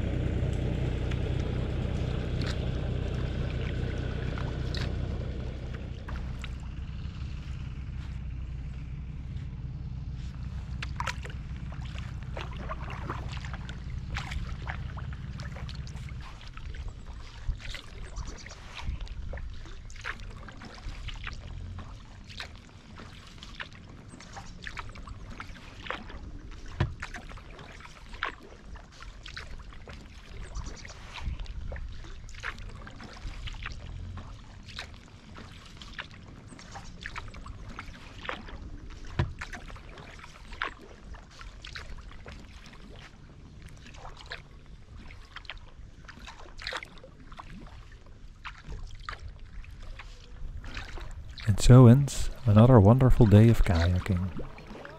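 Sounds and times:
low steady hum: 0:00.0 - 0:22.8, 0:49.3 - 0:54.9
paddle splashing in water: 0:00.0 - 0:54.9
water dripping off paddle: 0:00.4 - 0:06.8, 0:10.6 - 0:31.5.

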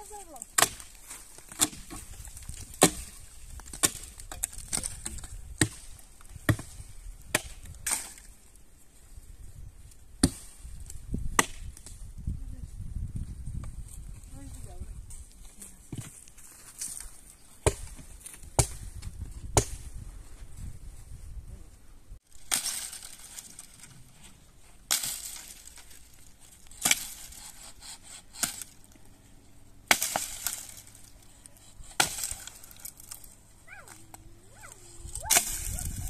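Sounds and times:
axe chopping firewood: 0:00.4 - 0:08.3, 0:10.2 - 0:12.0, 0:17.6 - 0:19.9, 0:22.4 - 0:23.8, 0:24.9 - 0:28.9, 0:29.8 - 0:31.2, 0:31.8 - 0:33.2, 0:35.2 - 0:36.0.

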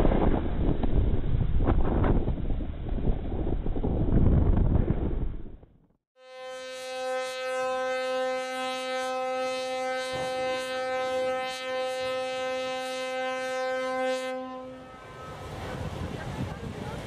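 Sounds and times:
ship's horn blast: 0:06.2 - 0:16.7.

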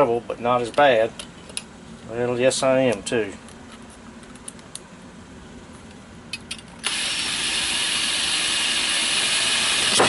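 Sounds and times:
power drill whirring: 0:06.8 - 0:10.0.

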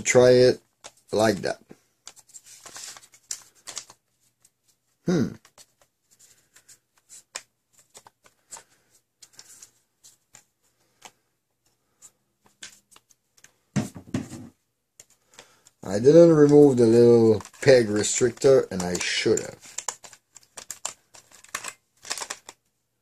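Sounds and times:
short vocal sound: 0:05.0 - 0:05.4
plastic clicks and scrapes of darts: 0:05.4 - 0:22.6.

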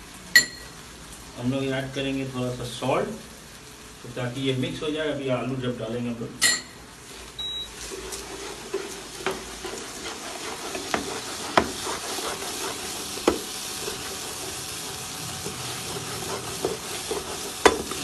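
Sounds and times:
peas frying in oil: 0:00.0 - 0:18.0
spatula knocking against pan: 0:10.8 - 0:11.8, 0:13.2 - 0:13.5, 0:16.6 - 0:18.0.

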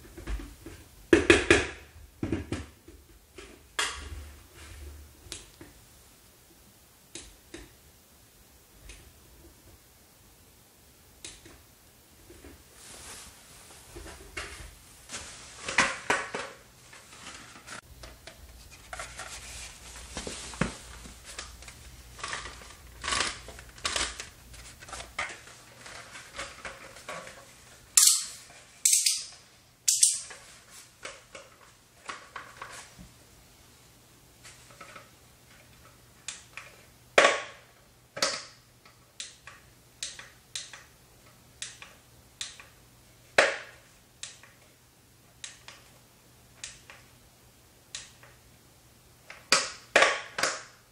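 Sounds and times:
hard hat being handled: 0:12.4 - 0:27.8.

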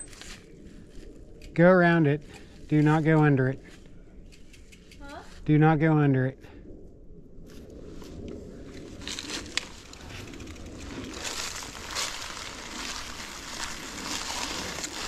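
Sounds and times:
dry leaves and twigs crunching: 0:00.0 - 0:01.4, 0:07.5 - 0:15.0.

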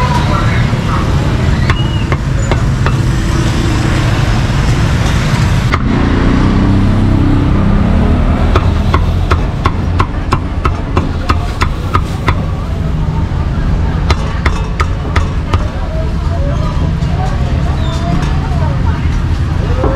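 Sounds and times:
road traffic rumble: 0:00.0 - 0:19.9
cleaver chopping meat: 0:08.5 - 0:12.5.

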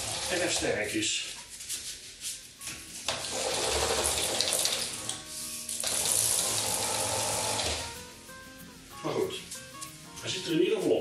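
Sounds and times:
roller blind fabric unrolling: 0:00.0 - 0:00.9, 0:02.9 - 0:08.0.

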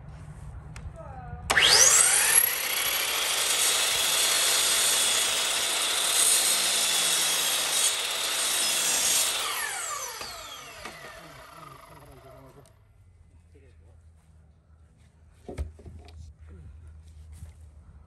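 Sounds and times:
electric saw cutting wood: 0:01.5 - 0:12.6.

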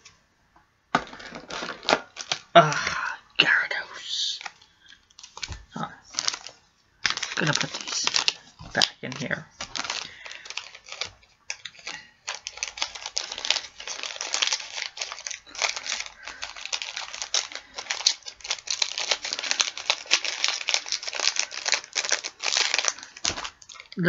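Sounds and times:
foil wrapper crinkling: 0:00.9 - 0:24.0.

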